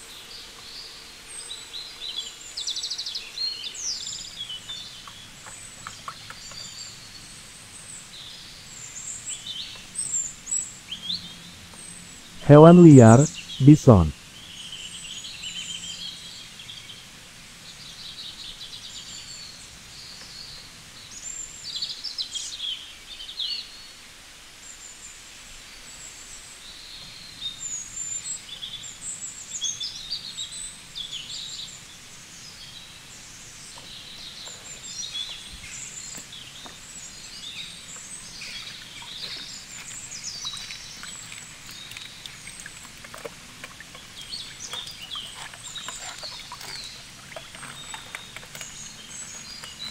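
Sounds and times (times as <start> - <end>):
faint outdoor hiss: 0.0 - 49.9
birds chirping and trilling: 43.9 - 49.9.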